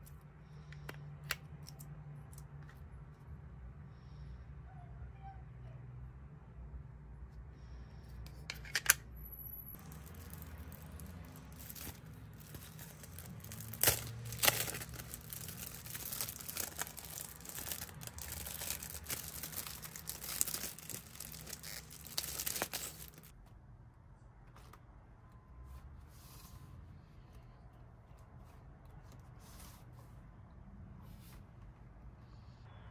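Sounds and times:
plastic packaging crinkling: 0:09.8 - 0:23.3.

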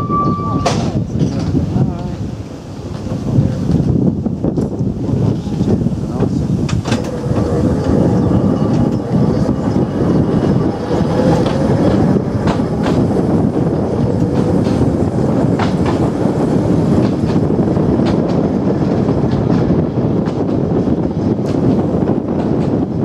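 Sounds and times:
tram wheels rumbling on rail: 0:00.0 - 0:23.0
wheels clicking over rail joints: 0:05.6 - 0:22.9.

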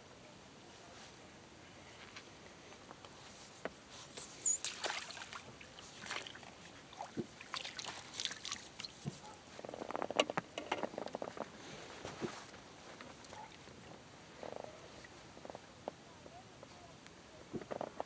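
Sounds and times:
landing net splashing in water: 0:04.2 - 0:09.0
water dripping: 0:04.4 - 0:09.0.

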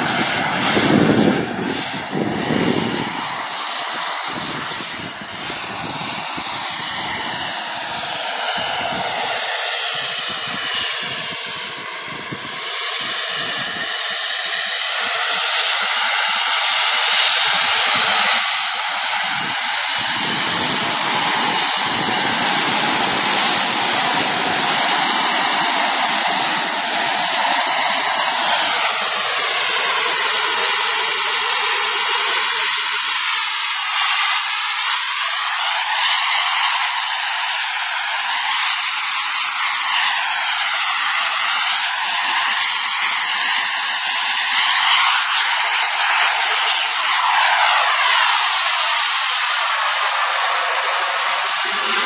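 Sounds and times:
model jet engine hissing: 0:00.0 - 0:52.0.

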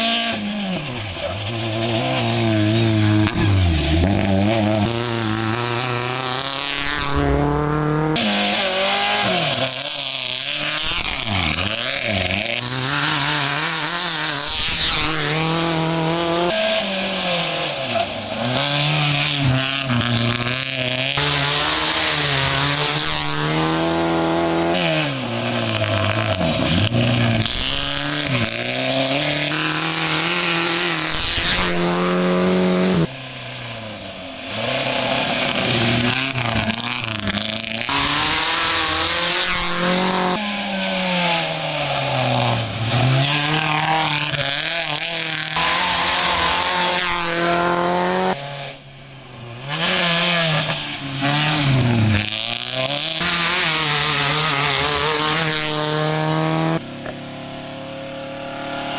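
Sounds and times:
rally car engines revving: 0:00.0 - 0:58.9
tyres on loose gravel: 0:33.1 - 0:40.7.

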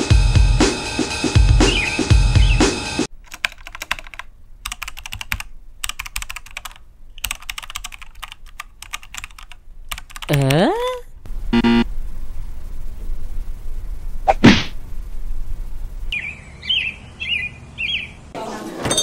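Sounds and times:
music with drum beat: 0:00.0 - 0:03.1
typing on laptop keyboard: 0:03.3 - 0:10.4.

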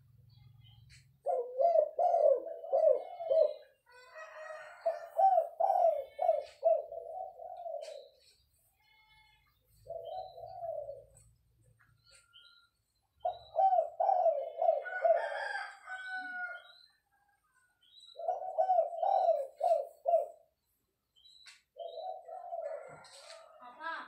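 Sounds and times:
dove cooing: 0:01.2 - 0:08.4, 0:09.8 - 0:11.5, 0:13.2 - 0:16.8, 0:18.1 - 0:20.6, 0:21.7 - 0:24.0.

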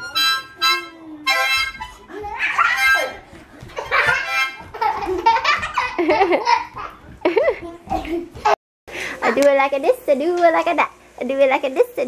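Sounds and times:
toy harmonica notes: 0:00.0 - 0:03.3, 0:03.9 - 0:04.8
children laughing and squealing: 0:01.9 - 0:08.4.

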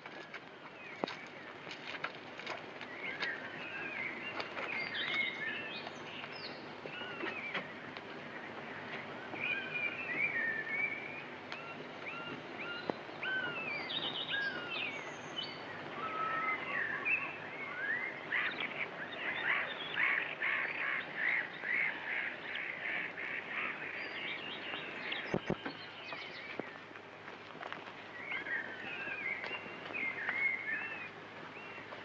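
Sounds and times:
birds chirping: 0:00.0 - 0:32.0.

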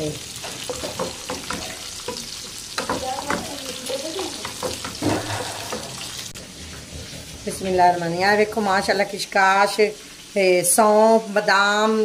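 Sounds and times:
deep-frying sizzle in hot oil: 0:00.0 - 0:12.0
spatula scraping a pan: 0:00.4 - 0:08.7.

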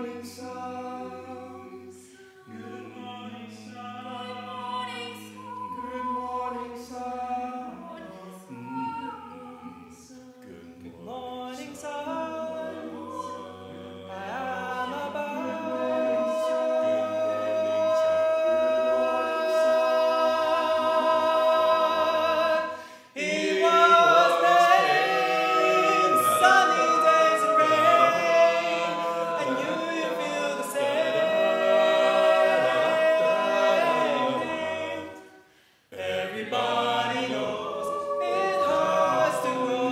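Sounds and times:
vocal group singing in harmony: 0:00.0 - 0:39.9.

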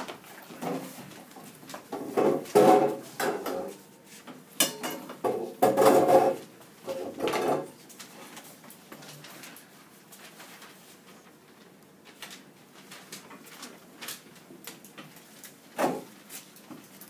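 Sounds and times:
knocks clatters and scrapes: 0:01.8 - 0:03.8, 0:04.9 - 0:07.8.

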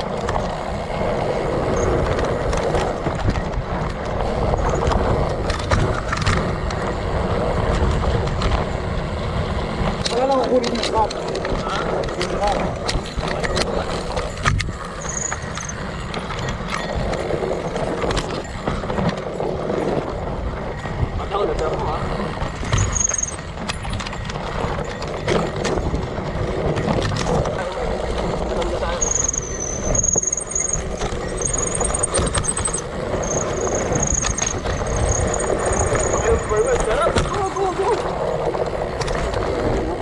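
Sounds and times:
bike knocking and rattling: 0:00.0 - 0:40.0
bike tyre rumbling on dirt trail: 0:00.0 - 0:40.0
wind buffeting camera: 0:00.0 - 0:40.0
brief high squeak: 0:29.0 - 0:36.2.

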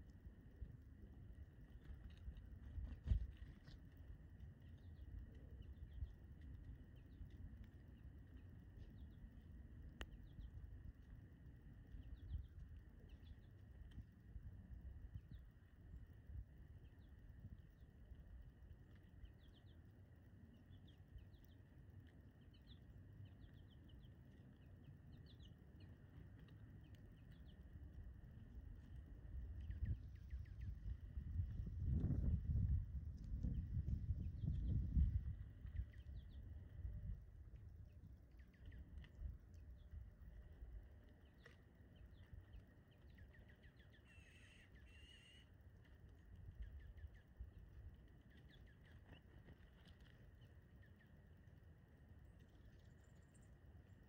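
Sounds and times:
low steady rumble: 0:00.0 - 0:54.0
songbirds chirping: 0:00.0 - 0:54.0
harsh buzzy bird calls: 0:43.0 - 0:45.6.

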